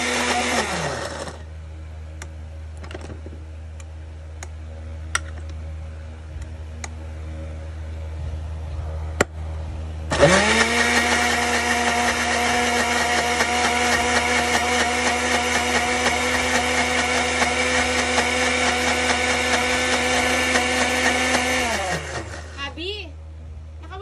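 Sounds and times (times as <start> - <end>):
blender motor running: 0.0 - 1.5, 10.1 - 22.6.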